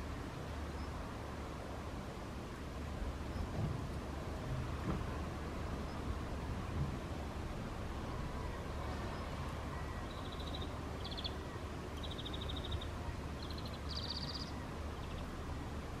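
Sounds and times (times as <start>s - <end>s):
songbird high trills: 9.7s - 15.3s.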